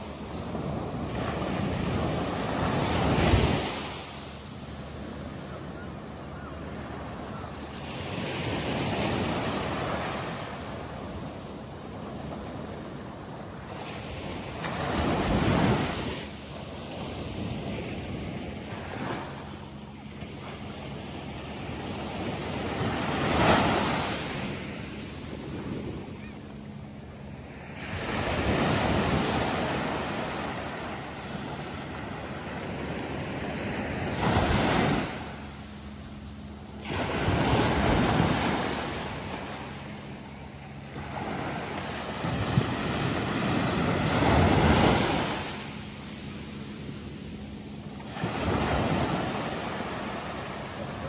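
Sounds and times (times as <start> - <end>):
surf washing up beach: 27.4 - 35.6, 36.6 - 51.0.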